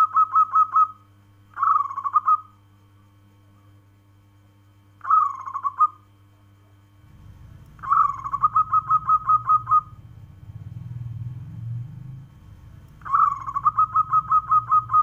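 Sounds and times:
dove cooing: 0:00.0 - 0:01.0, 0:01.6 - 0:02.5, 0:05.0 - 0:06.0, 0:07.1 - 0:11.7, 0:12.5 - 0:15.0.

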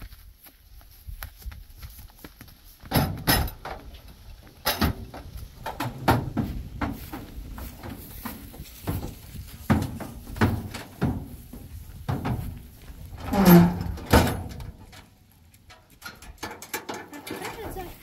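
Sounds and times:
knocks and thuds: 0:04.7 - 0:14.9.

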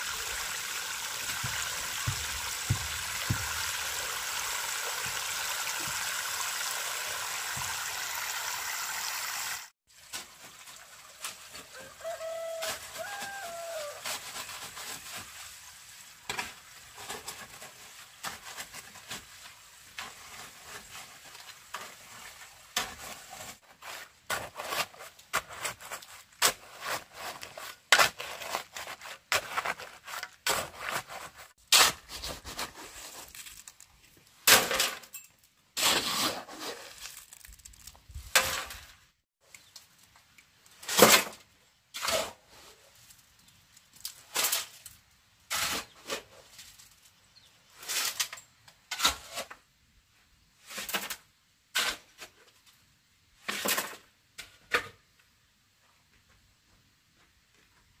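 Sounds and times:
water sprinkling from watering can: 0:00.0 - 0:22.6
shovel scraping wet cement: 0:01.2 - 0:04.2, 0:20.0 - 0:33.8, 0:35.8 - 0:37.6, 0:40.8 - 0:42.9, 0:44.2 - 0:44.9, 0:45.5 - 0:46.5, 0:47.8 - 0:49.6, 0:50.6 - 0:52.4, 0:53.4 - 0:54.8.

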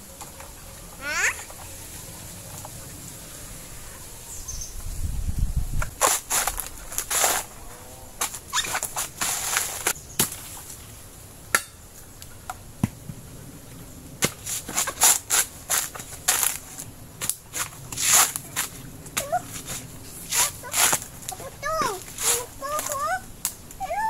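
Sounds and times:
blade chopping coconuts: 0:11.5 - 0:11.8.

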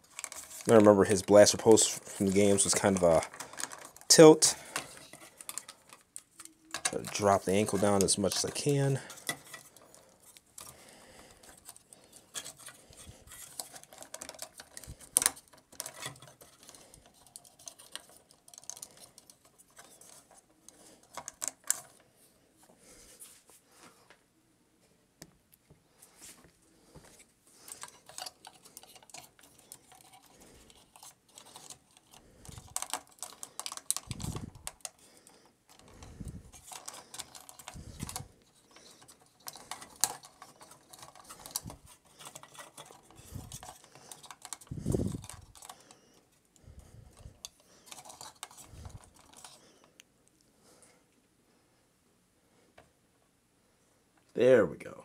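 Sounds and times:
plastic parts clicking: 0:00.0 - 0:22.0, 0:27.6 - 0:46.0, 0:47.1 - 0:50.0.

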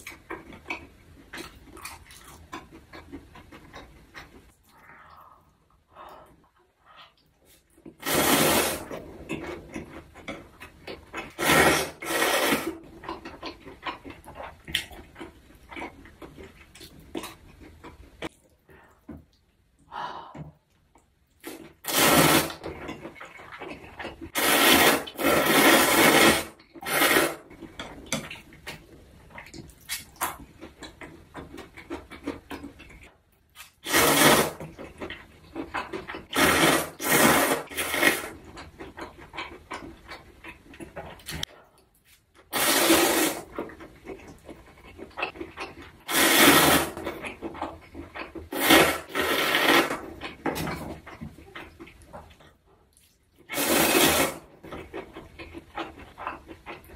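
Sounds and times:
chewing: 0:00.0 - 0:08.0, 0:08.8 - 0:11.4, 0:12.8 - 0:19.9, 0:22.6 - 0:24.4, 0:27.5 - 0:33.8, 0:34.6 - 0:36.4, 0:37.9 - 0:42.5, 0:43.4 - 0:46.2, 0:47.0 - 0:53.6, 0:54.4 - 0:56.9
wet noodle slurping: 0:07.0 - 0:09.8, 0:10.6 - 0:17.4, 0:21.4 - 0:22.6, 0:23.2 - 0:27.6, 0:33.8 - 0:40.2, 0:42.5 - 0:50.4, 0:53.4 - 0:56.9.

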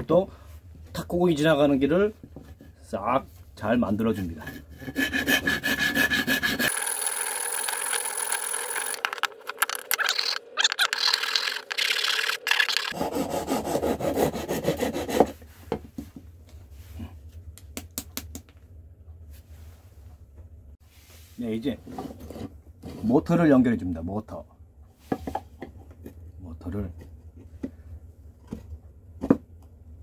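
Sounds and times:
hand file scraping wood: 0:03.9 - 0:07.0, 0:10.9 - 0:15.5.

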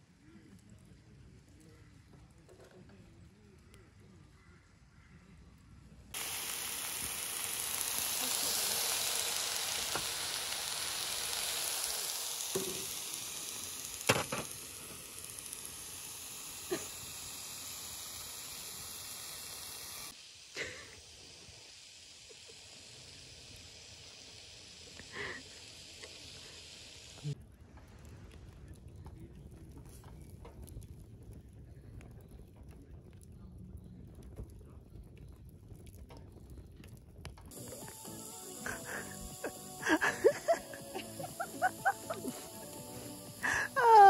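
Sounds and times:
food sizzling in frying pan: 0:06.2 - 0:27.4, 0:37.5 - 0:44.0.

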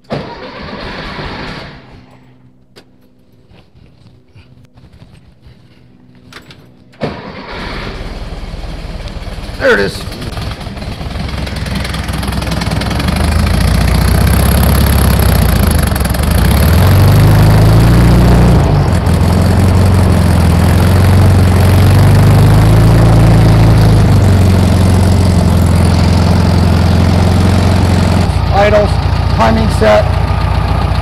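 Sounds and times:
car engine idling: 0:07.2 - 0:31.0.

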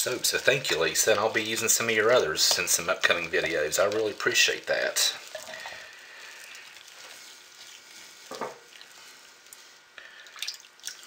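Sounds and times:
spatula stirring thick soap: 0:00.0 - 0:11.0.

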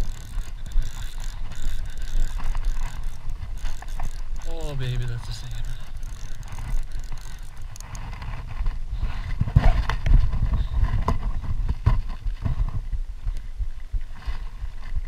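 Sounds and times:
wind noise: 0:00.0 - 0:15.0
microphone handling rumble: 0:07.6 - 0:15.0.

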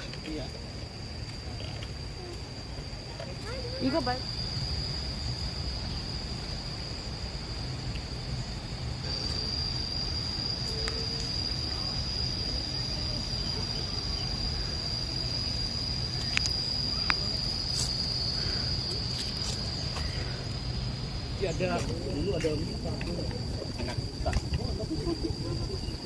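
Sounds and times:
high-pitched insect drone: 0:00.0 - 0:26.0
faint clicks: 0:16.2 - 0:17.2.

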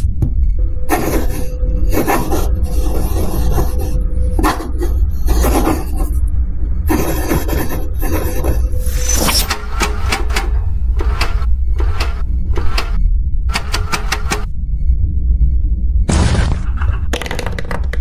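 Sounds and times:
steady low rumble: 0:00.0 - 0:07.0, 0:09.5 - 0:13.6, 0:14.4 - 0:17.1
pen scratching on paper: 0:00.9 - 0:06.1, 0:06.9 - 0:09.5.

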